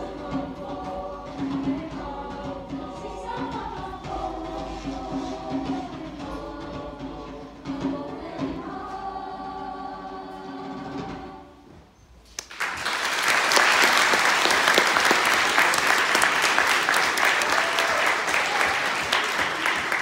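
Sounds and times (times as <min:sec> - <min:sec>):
choir holding chord: 0:00.0 - 0:11.5
audience applause: 0:12.4 - 0:20.0.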